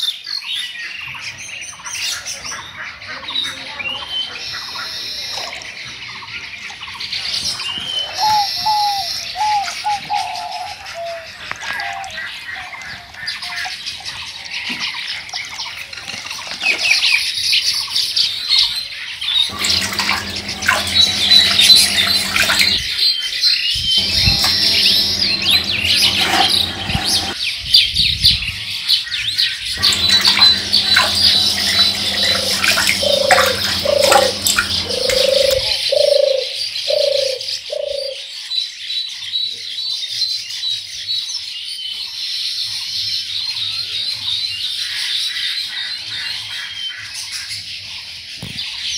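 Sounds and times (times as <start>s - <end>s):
birds chirping and calling: 19.2s - 23.1s, 23.7s - 38.8s
low steady hum: 19.5s - 22.8s, 24.0s - 27.4s, 29.8s - 35.7s
lower bird calls: 29.8s - 38.2s.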